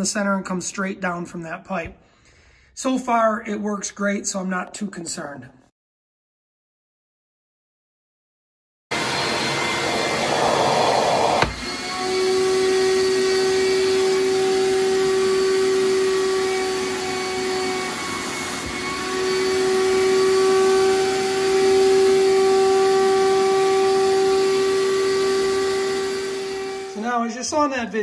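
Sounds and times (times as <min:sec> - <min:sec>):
vacuum pump humming and hissing: 0:09.0 - 0:28.0.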